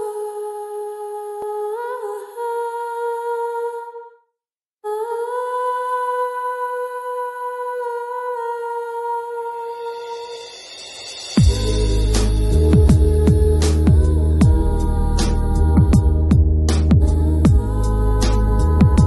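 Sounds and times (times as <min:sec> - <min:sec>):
wordless hummed melody: 0:11.4 - 0:19.0.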